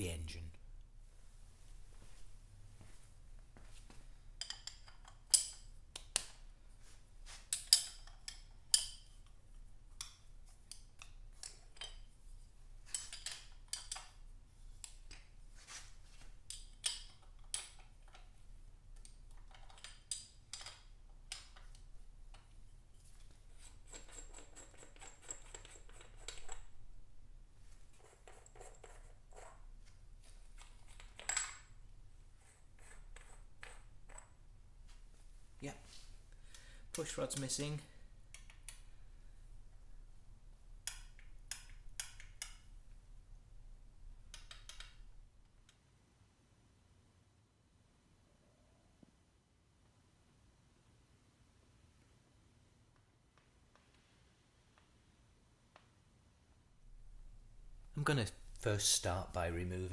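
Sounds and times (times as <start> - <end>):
metallic clicks and clinks: 4.4 - 6.4, 7.5 - 9.3, 10.0 - 12.1, 12.9 - 14.2, 19.0 - 22.4, 30.5 - 31.8.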